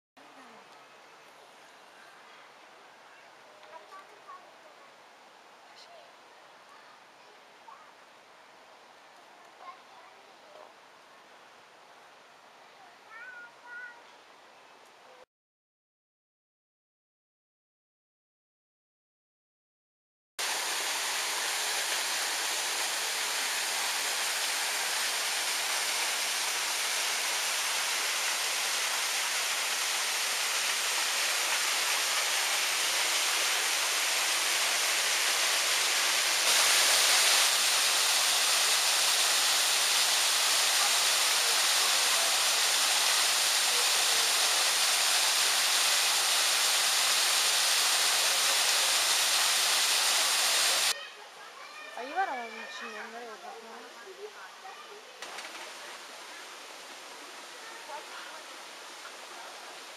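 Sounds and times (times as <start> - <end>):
waterfall pouring over rocks: 20.4 - 51.0, 54.7 - 59.9.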